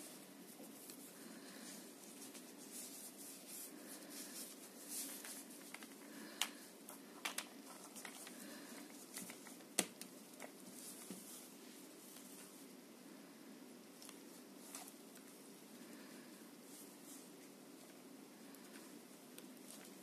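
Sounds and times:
faint rustling: 0:00.0 - 0:12.8.

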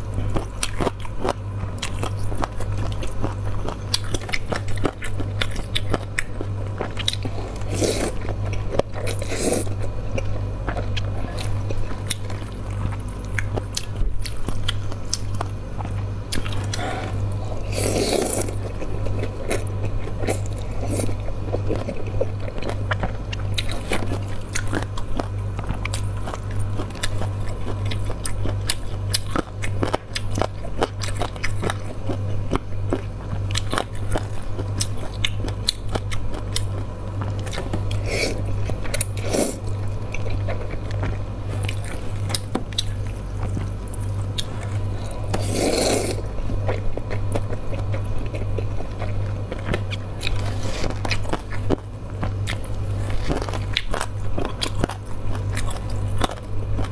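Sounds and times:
low hum: 0:00.0 - 0:56.9
person chewing noodles: 0:00.0 - 0:56.9
noodle slurps: 0:16.6 - 0:18.6, 0:39.2 - 0:39.7, 0:45.3 - 0:46.2.

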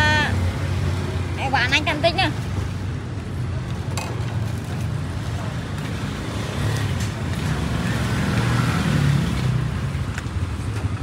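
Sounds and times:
vehicle passing: 0:06.0 - 0:10.1.

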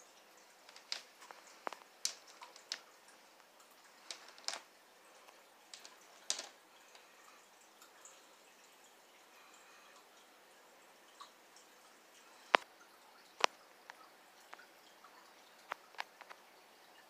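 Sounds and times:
stones knocking together: 0:00.7 - 0:02.8, 0:04.0 - 0:04.7, 0:05.7 - 0:06.6
claws and shell tapping glass: 0:00.7 - 0:02.9, 0:04.0 - 0:04.7, 0:05.7 - 0:07.1.

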